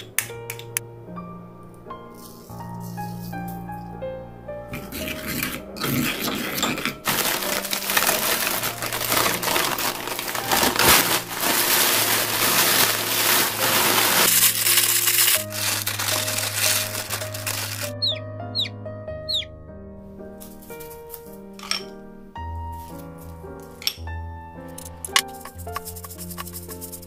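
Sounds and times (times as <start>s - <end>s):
background music: 0.0s - 27.0s
plastic bag crinkling: 7.0s - 18.1s
seaweed sheets crackling: 7.0s - 18.2s.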